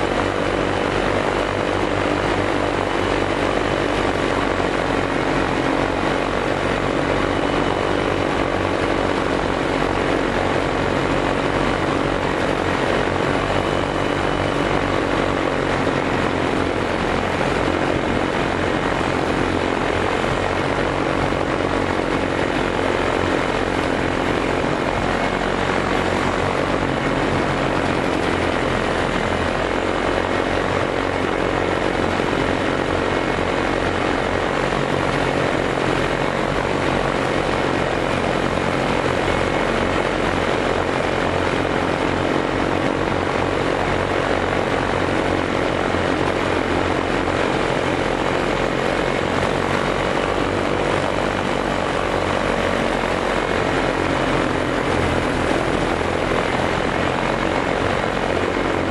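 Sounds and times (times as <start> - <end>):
propeller aircraft engine droning: 0.0 - 58.9.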